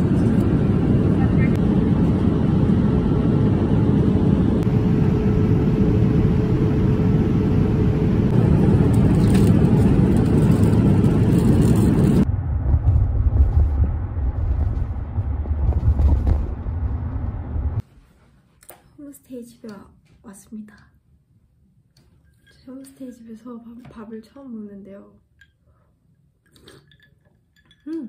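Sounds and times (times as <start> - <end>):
airliner cabin noise: 0.0 - 17.8
car road noise rumble: 8.0 - 17.8.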